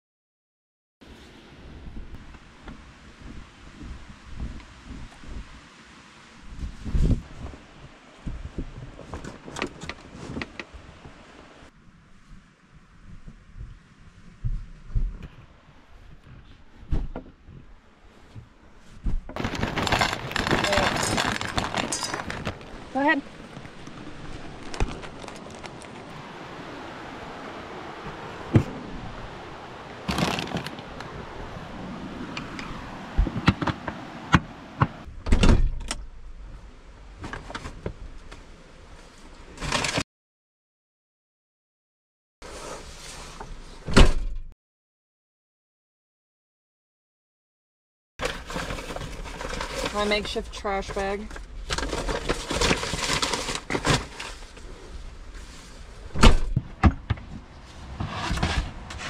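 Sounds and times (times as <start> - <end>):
plastic bag rustling: 19.3 - 26.1, 30.1 - 30.9, 48.2 - 55.8.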